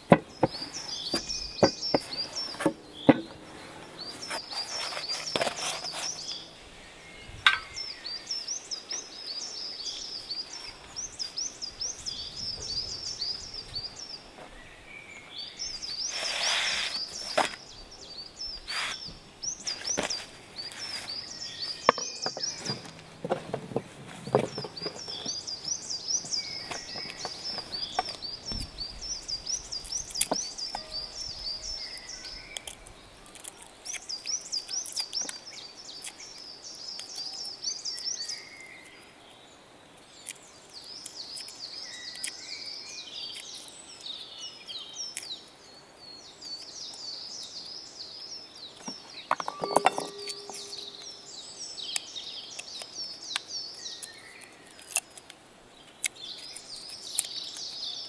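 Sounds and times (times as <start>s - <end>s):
birds chirping: 0.0s - 58.0s
short clink with ring: 49.4s - 51.1s.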